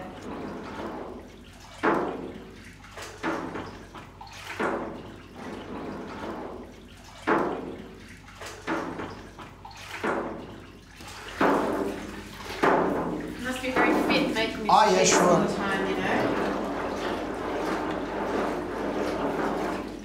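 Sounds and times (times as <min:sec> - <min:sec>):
liquid sloshing while stirred: 0:00.0 - 0:20.0.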